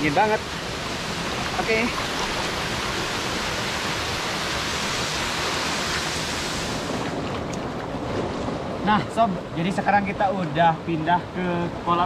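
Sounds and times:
waterfall rushing: 0.0 - 7.2.

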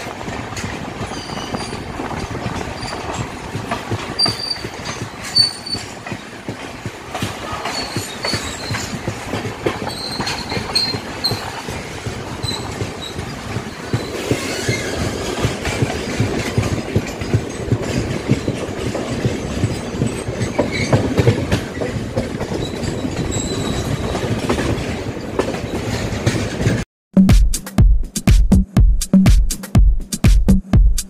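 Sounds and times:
train wheels rumbling on rails: 0.0 - 26.8
high wheel squeals: 1.0 - 3.3, 4.2 - 6.4, 7.4 - 9.1, 9.8 - 11.7, 12.4 - 16.2, 19.6 - 21.8, 22.5 - 24.4.

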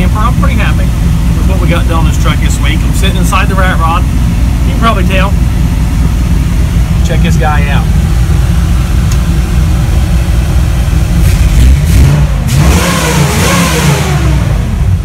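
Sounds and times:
truck engine running and revving: 0.0 - 15.0
person talking: 7.0 - 7.9.

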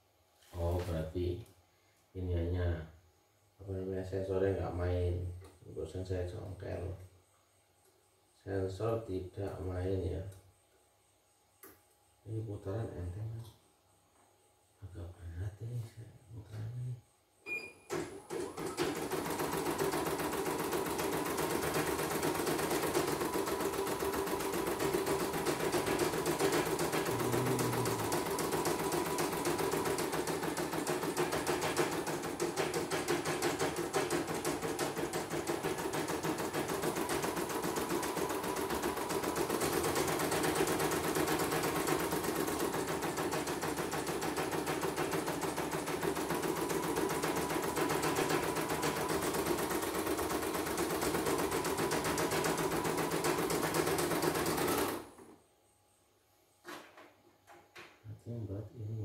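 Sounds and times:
embroidery machine stitching: 17.9 - 55.4.

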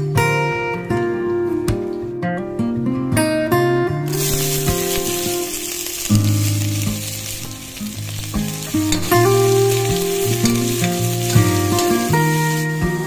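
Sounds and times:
guitar music: 0.0 - 13.0
spoon stirring: 4.1 - 12.6
vegetables sizzling in a pot: 4.1 - 13.0.

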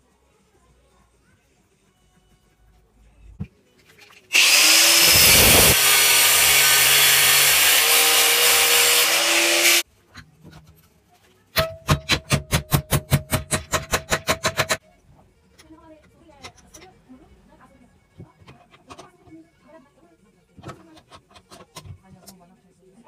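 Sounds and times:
angle grinder cutting steel: 4.3 - 9.8.

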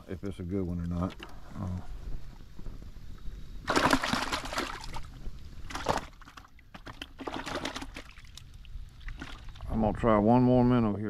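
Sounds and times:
water splashing and sloshing: 3.6 - 9.9.

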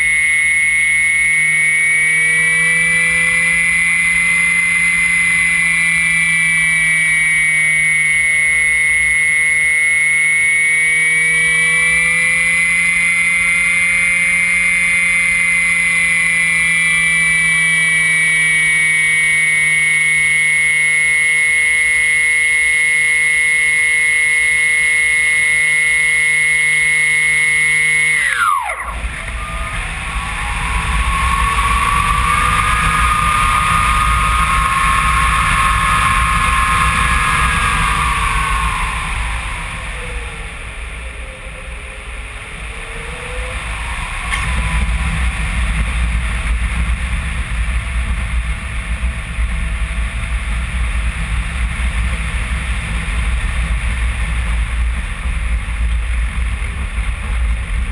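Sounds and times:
faint whistling tone: 0.0 - 17.2, 19.6 - 46.1
electric motor whining: 0.0 - 45.6
wind rushing over glider: 28.2 - 40.7.

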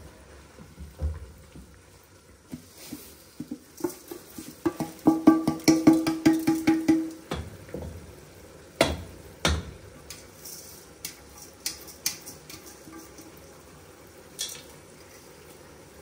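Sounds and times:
kitchen background: 0.0 - 16.0
utensils clinking against pot: 10.1 - 13.4, 14.4 - 14.8.

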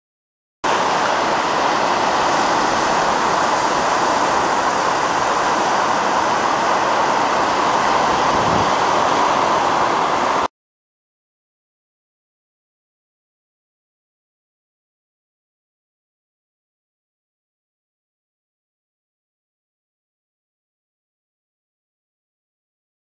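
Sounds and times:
surf breaking on a beach: 0.6 - 10.5.

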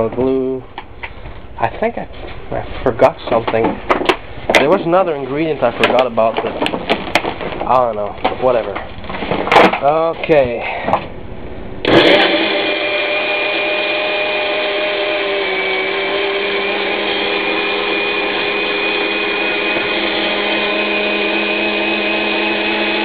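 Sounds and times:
blender motor whirring: 11.8 - 23.0.

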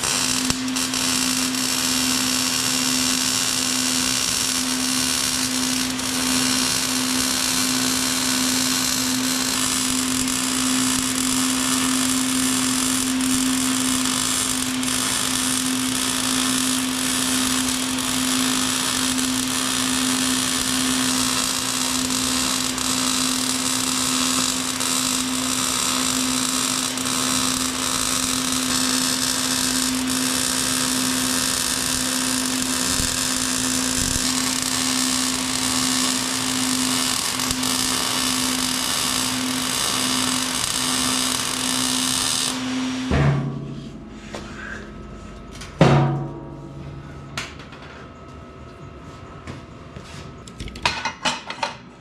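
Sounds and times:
power tool motor humming: 0.0 - 42.6.

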